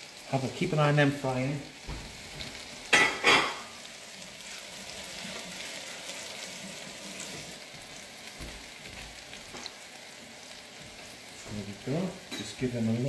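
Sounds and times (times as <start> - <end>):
oil sizzling in deep fryer: 0.0 - 13.0.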